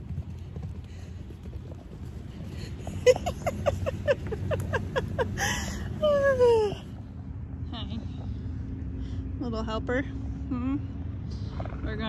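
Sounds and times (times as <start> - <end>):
wind rumble on microphone: 0.0 - 12.0
woman laughing: 2.8 - 6.8.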